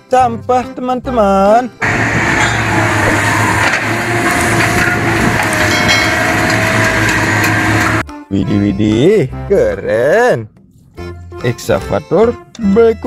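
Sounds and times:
diesel engine running: 1.8 - 8.0
hydraulic whine: 1.8 - 8.0.

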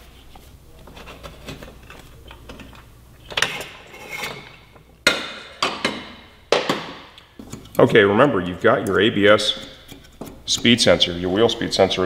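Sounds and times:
metal clicks and scraping: 7.4 - 8.0, 8.8 - 11.0.

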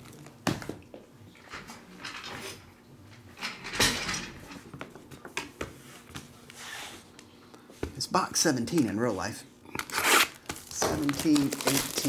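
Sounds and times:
cardboard rustling: 10.1 - 12.0.

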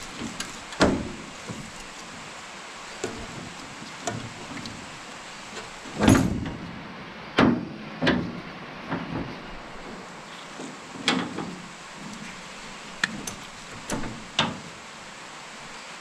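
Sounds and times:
metal parts knocking and clunking: 0.1 - 1.8, 5.6 - 6.6, 10.9 - 12.4, 13.0 - 14.7.

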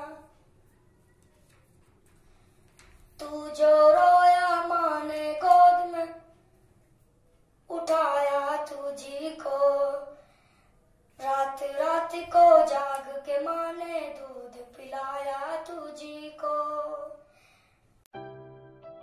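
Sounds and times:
boy singing unaccompanied: 0.0 - 0.4, 3.2 - 6.3, 7.7 - 10.2, 11.2 - 17.2.

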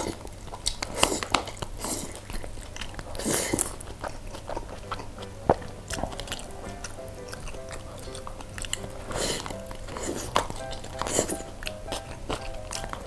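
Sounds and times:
chewing: 0.0 - 13.0
slurping noodles: 0.0 - 13.0.

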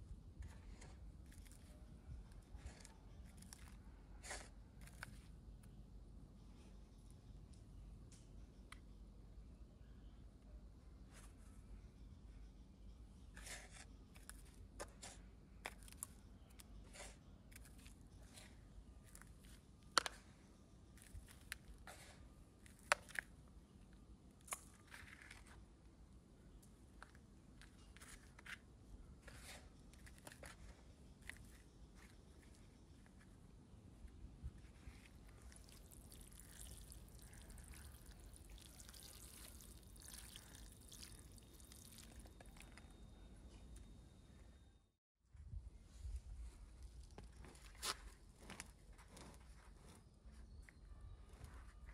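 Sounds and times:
pouring trickling with crackles: 35.2 - 42.8.

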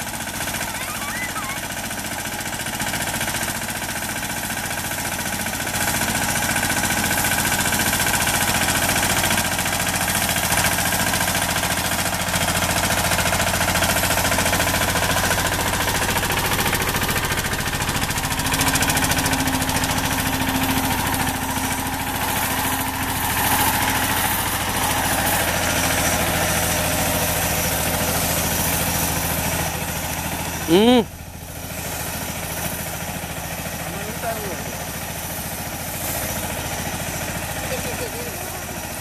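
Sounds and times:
tractor engine chugging: 0.0 - 39.0.

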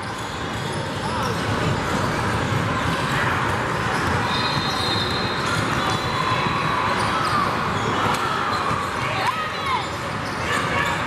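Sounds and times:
crowd voices and shouts: 0.0 - 11.0
basketball bouncing on court: 0.1 - 7.1, 7.8 - 9.1.

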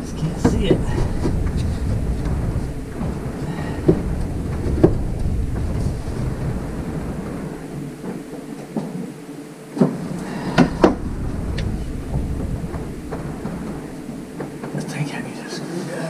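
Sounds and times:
sharp knocks: 0.0 - 9.1, 9.7 - 15.0
low rumble: 0.0 - 15.1.

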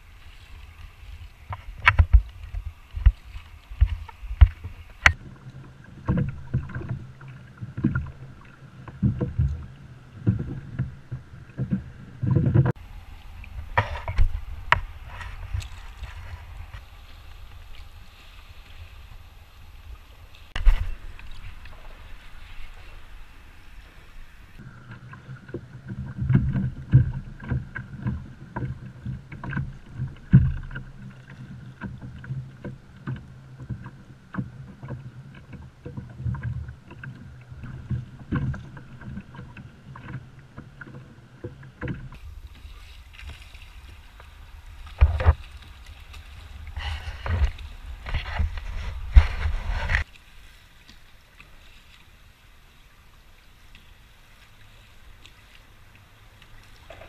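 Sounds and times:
water noise: 0.0 - 57.0
wind noise: 9.0 - 30.8, 42.0 - 50.6.

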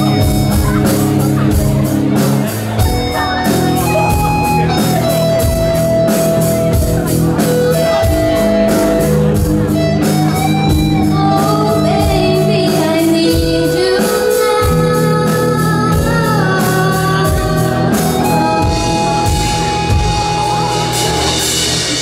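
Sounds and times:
bass guitar: 0.0 - 22.0
drums beating: 0.0 - 22.0
electric guitars: 0.0 - 22.0
women singing: 11.1 - 17.9.

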